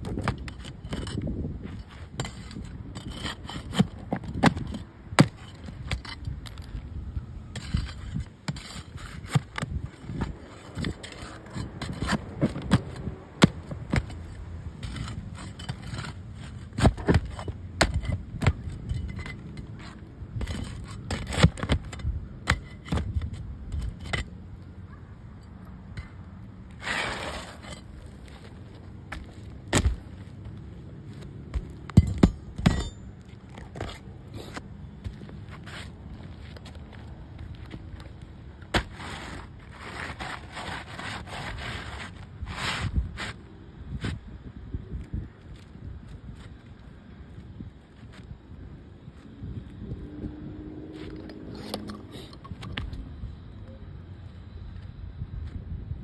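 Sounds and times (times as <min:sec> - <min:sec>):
roof shingles scraping: 0:26.7 - 0:30.3, 0:38.6 - 0:43.4.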